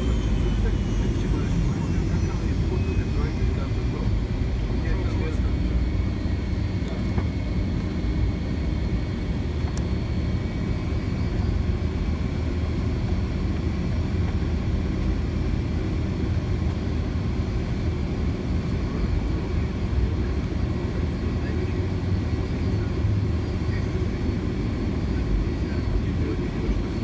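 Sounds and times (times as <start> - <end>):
faint high engine tones: 0.0 - 14.6
jet engines rumbling: 0.0 - 27.0.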